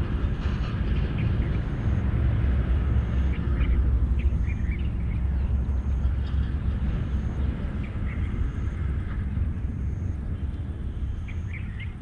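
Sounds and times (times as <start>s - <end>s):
low outdoor rumble: 0.0s - 12.0s
bird chirps: 11.2s - 12.0s.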